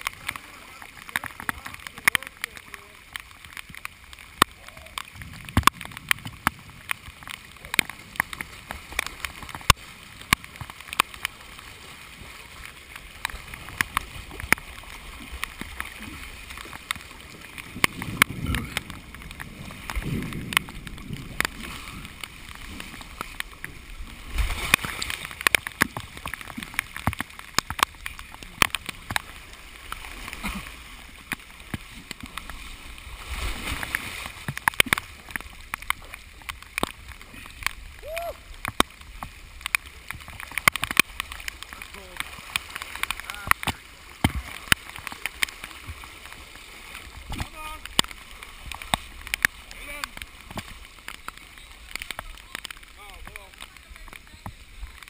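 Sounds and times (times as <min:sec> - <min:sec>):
floodwater rushing and gurgling: 0:00.0 - 0:55.0
drops ticking on camera housing: 0:01.0 - 0:11.3, 0:24.7 - 0:30.0, 0:34.4 - 0:45.5, 0:47.3 - 0:53.0.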